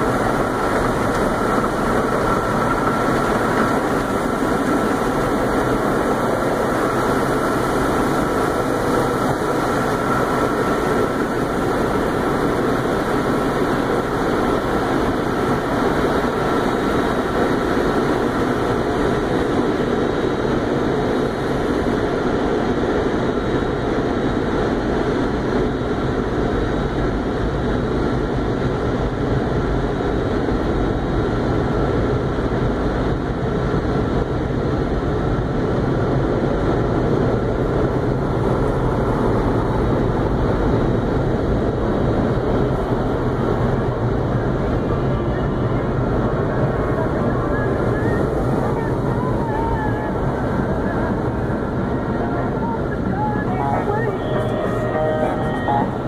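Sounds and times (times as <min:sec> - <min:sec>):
car wash equipment rushing: 0:00.0 - 0:25.2.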